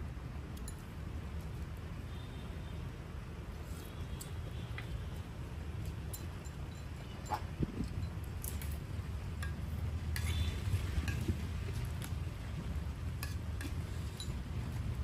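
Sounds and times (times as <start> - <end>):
utensils clinking on bowls: 13.2 - 14.5.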